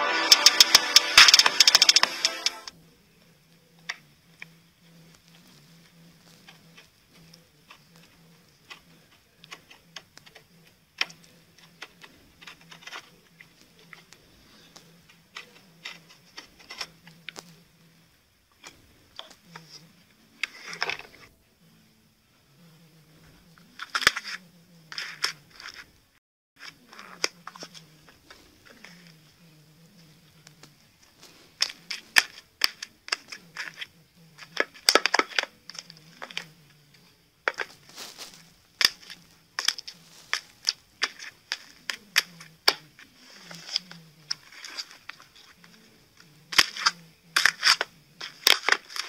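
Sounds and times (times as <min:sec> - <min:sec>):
brittle layers crackling by hand: 0:30.3 - 0:45.8, 0:46.5 - 0:49.0
slime crackling and popping: 0:37.5 - 0:42.8, 0:46.5 - 0:49.0.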